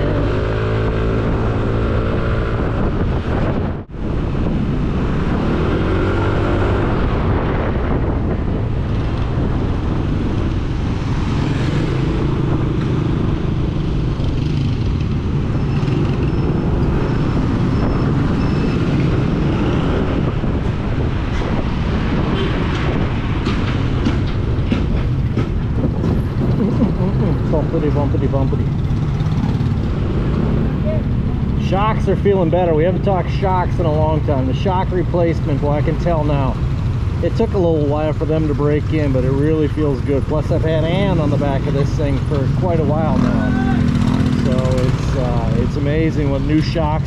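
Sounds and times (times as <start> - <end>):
road and wind noise: 0.0 - 47.0
scooter engine revving: 42.9 - 45.6.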